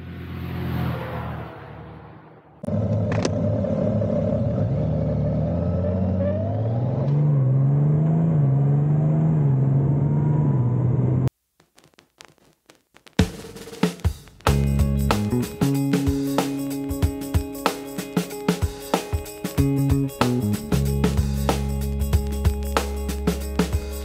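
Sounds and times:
motorcycle engine accelerating: 0.0 - 11.3.

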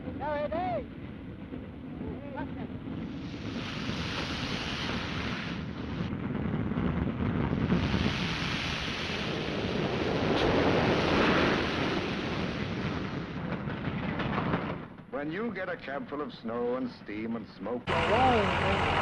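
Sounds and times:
snow plow train roaring through snow: 7.8 - 13.0, 17.9 - 19.0.

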